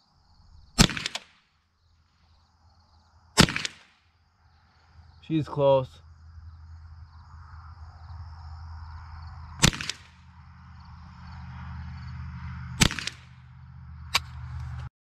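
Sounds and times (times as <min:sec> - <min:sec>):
rifle shots cracking: 0:00.7 - 0:01.5, 0:03.4 - 0:04.0, 0:09.6 - 0:10.4, 0:12.8 - 0:13.4.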